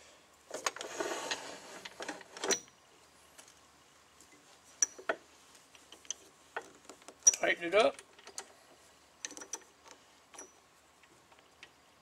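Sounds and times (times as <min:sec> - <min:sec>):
sharp metal clicks: 0:07.0 - 0:08.5.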